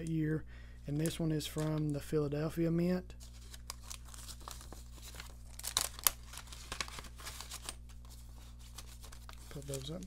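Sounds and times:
plastic packaging crinkling: 3.2s - 10.0s
sharp plastic crackles: 3.3s - 7.9s.

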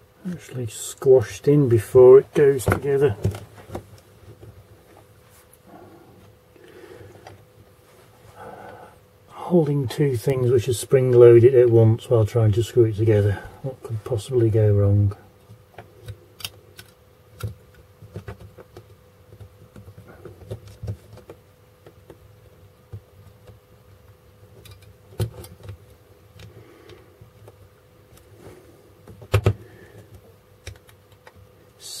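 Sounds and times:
faint steady hum: 0.0s - 32.0s
plastic parts clicking and rattling: 24.6s - 25.8s.

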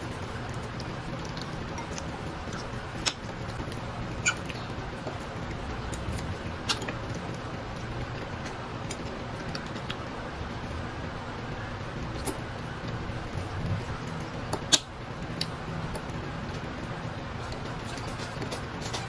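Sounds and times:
chewing: 0.5s - 7.4s.

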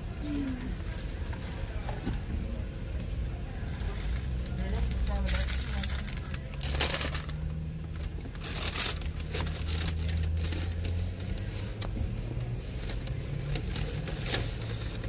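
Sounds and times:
car idling hum: 0.0s - 15.0s
paper bag rustling: 3.8s - 11.8s.

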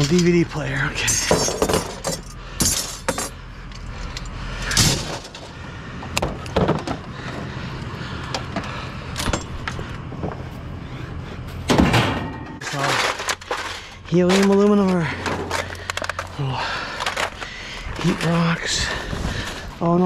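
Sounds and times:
metal and plastic scrap clinking: 0.0s - 0.4s, 1.1s - 3.4s, 11.7s - 18.3s
steady low hum: 0.0s - 20.0s.

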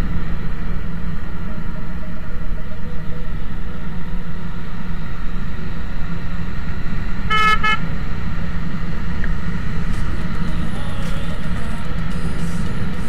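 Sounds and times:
motorcycle engine rumble: 0.0s - 13.0s
wind while riding: 0.0s - 13.0s
horn toots: 7.3s - 7.9s.

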